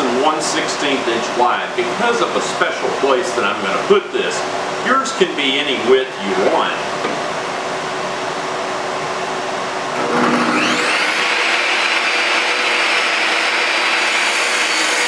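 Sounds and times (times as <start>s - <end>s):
table saw motor whining: 10.0s - 15.0s.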